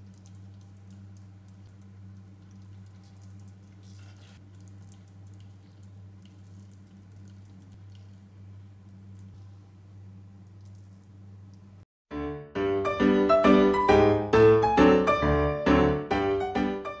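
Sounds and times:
wet squishes and clicks: 0.0 - 9.6, 10.4 - 11.8
steady low hum: 0.0 - 11.9.

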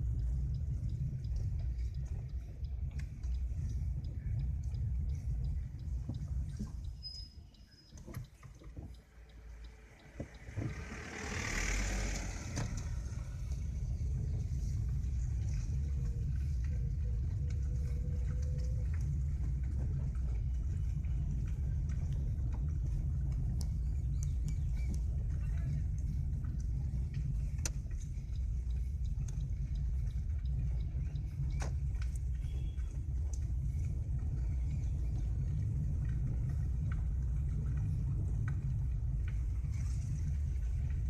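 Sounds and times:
wind buffeting microphone: 12.6 - 41.0.

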